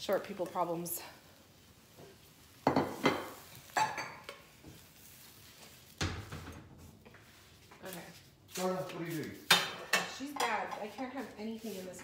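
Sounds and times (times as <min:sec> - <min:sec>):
pan and utensils clattering: 0:02.6 - 0:04.8, 0:09.4 - 0:11.3.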